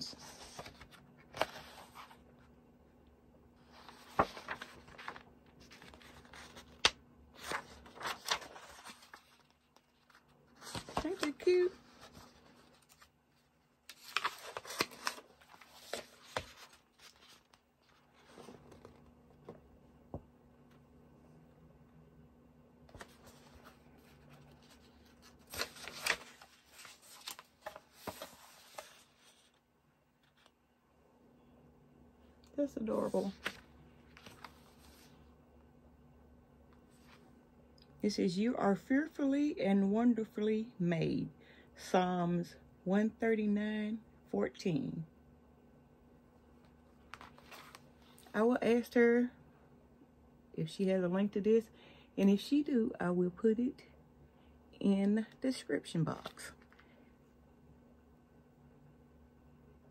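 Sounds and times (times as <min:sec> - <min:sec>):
paper pages turning: 0:00.0 - 0:02.5, 0:03.6 - 0:19.6, 0:22.9 - 0:29.6, 0:30.2 - 0:30.6, 0:32.8 - 0:35.3, 0:46.6 - 0:48.3.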